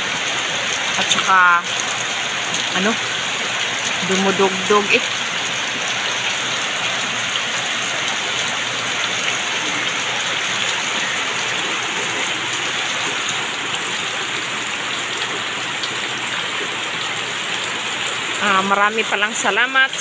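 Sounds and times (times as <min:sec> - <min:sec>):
heavy rain splashing: 0:00.0 - 0:20.0.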